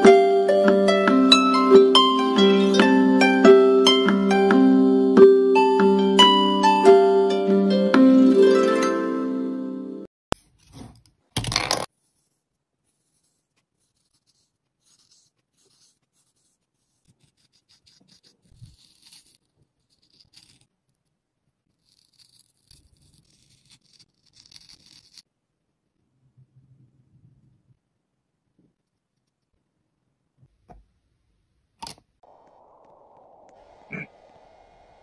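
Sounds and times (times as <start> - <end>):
marker tip scratching on card: 12.8 - 20.7.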